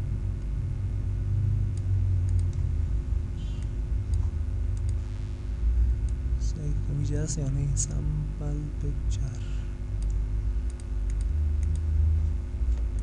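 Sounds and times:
faint hum: 0.0s - 13.0s
low background rumble: 0.0s - 13.0s
computer mouse clicks: 1.7s - 2.6s, 3.5s - 5.0s, 10.0s - 11.9s.

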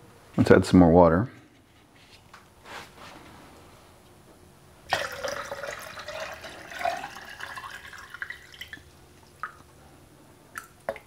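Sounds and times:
water drip: 4.9s - 9.7s, 10.5s - 11.0s.

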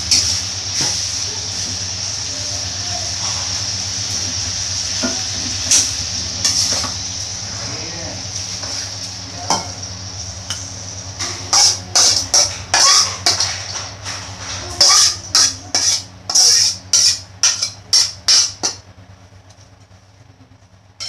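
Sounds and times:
steady low hum: 0.0s - 21.0s
spatula scraping a wok: 3.1s - 7.1s, 8.4s - 9.6s, 11.2s - 18.8s.

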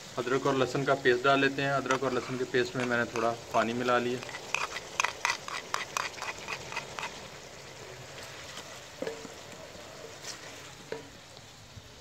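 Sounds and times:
masala sizzling in oil: 0.0s - 12.0s.

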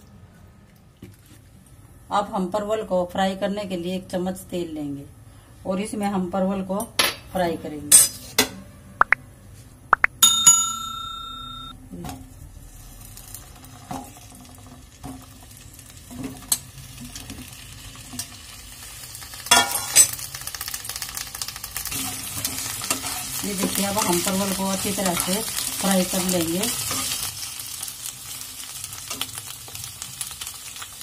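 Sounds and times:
ringing bell chime: 10.2s - 11.7s
oil sizzling in a pan: 12.3s - 31.0s.

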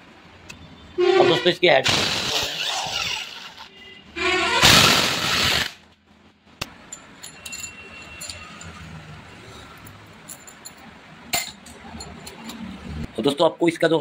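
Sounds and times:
air impact wrench: 1.8s - 3.7s, 4.3s - 5.8s
metal parts clinking: 6.9s - 8.9s, 9.8s - 12.7s.

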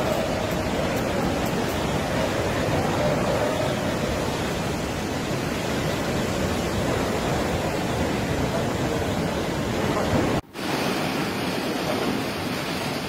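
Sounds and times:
tunnel boring machine grinding: 0.0s - 5.3s.

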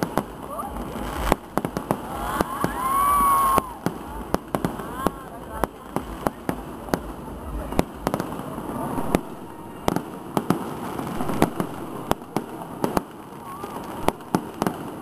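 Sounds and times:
fireworks bangs and pops: 0.0s - 15.0s
steady background noise: 0.0s - 15.0s.

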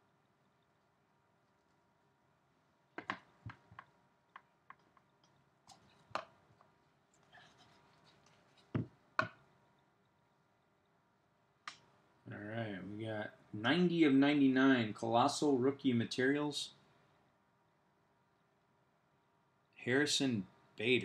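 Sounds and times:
cards tapping on a tabletop: 3.0s - 4.5s.

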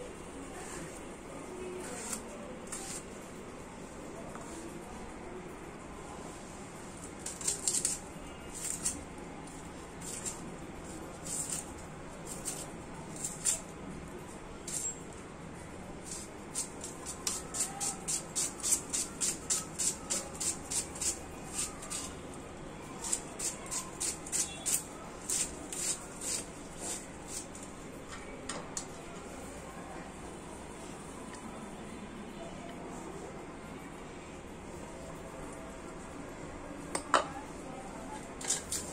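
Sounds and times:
knife slicing through onions: 1.8s - 3.1s, 7.2s - 9.0s, 10.0s - 13.7s, 16.0s - 22.1s, 23.0s - 27.6s, 38.4s - 38.9s.

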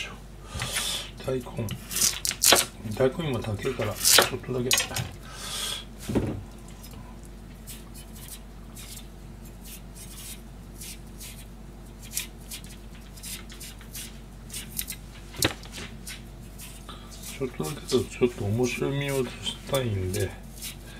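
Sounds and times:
steady low hum: 0.0s - 20.9s
knife scraping radish skin: 1.7s - 3.0s, 3.6s - 4.3s, 7.6s - 15.0s, 16.0s - 20.9s.

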